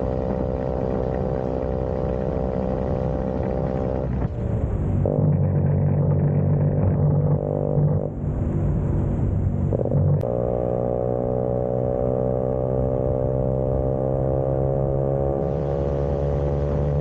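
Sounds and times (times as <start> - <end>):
scooter engine running: 0.0 - 8.0, 15.4 - 17.0.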